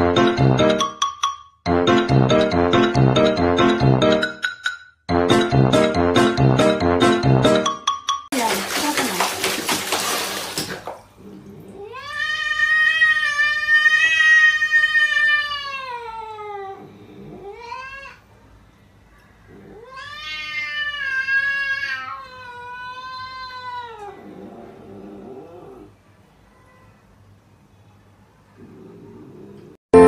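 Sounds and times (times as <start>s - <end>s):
cat yowling: 11.8s - 18.2s, 19.5s - 24.3s.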